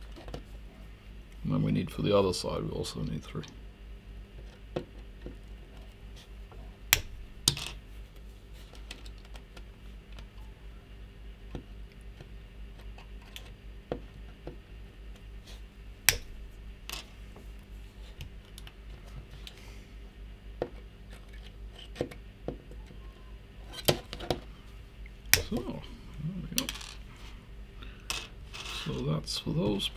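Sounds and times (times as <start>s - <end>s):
steady low hum: 0.0s - 29.9s.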